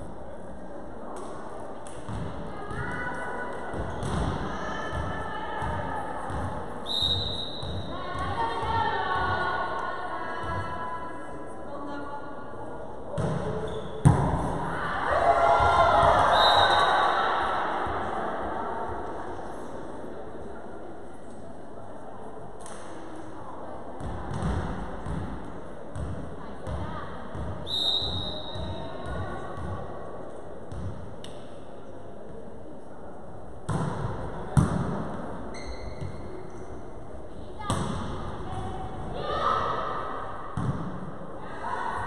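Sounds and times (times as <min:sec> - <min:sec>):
volleyball hits echoing: 0:13.2 - 0:14.7, 0:33.7 - 0:35.3, 0:37.6 - 0:41.3
people shouting and cheering: 0:14.6 - 0:17.8.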